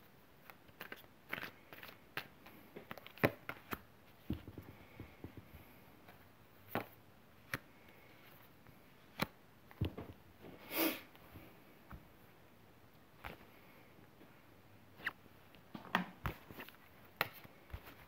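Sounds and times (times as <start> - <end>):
cards clicking and rustling: 0.4 - 5.5.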